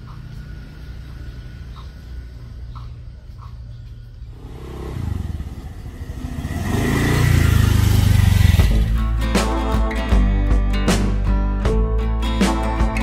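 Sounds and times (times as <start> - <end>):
motor scooter engine revving: 4.3 - 9.0
acoustic guitar music: 8.5 - 13.0.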